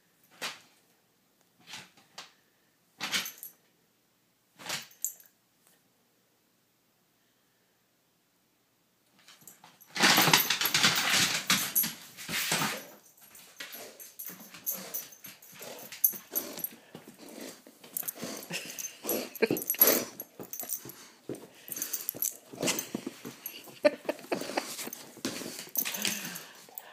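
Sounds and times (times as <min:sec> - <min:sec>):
paws and ball on wooden floor: 0:09.6 - 0:26.9.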